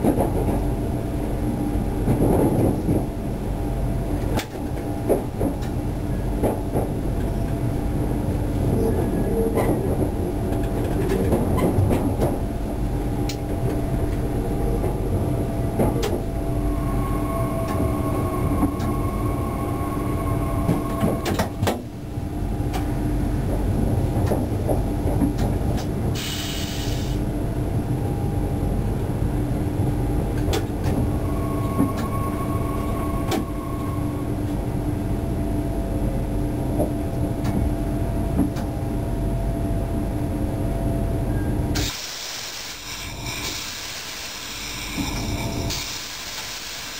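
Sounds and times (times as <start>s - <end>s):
train rumbling: 0.0s - 46.9s
faint whining tones: 13.2s - 22.8s, 30.0s - 36.4s
air hiss: 26.2s - 27.2s, 41.8s - 44.6s, 45.7s - 46.9s.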